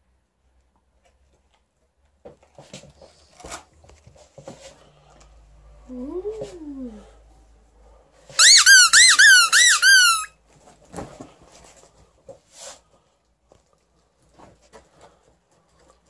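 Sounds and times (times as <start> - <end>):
toy squeaker squeaking: 8.4 - 10.3.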